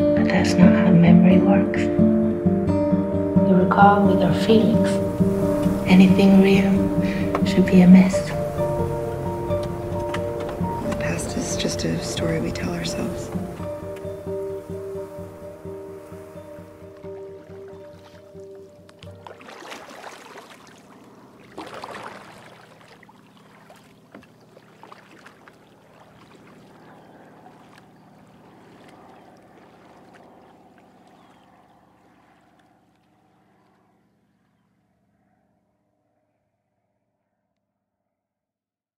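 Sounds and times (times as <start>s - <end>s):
water lapping against hull: 3.8s - 34.0s
paddle splashing in water: 16.9s - 32.9s.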